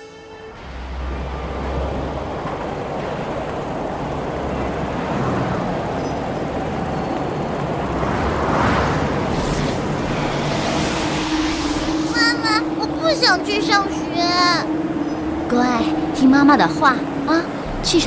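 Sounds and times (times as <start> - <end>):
hum and rumble of passing vehicles: 0.0 - 18.0
vehicle whooshing past: 4.3 - 18.0.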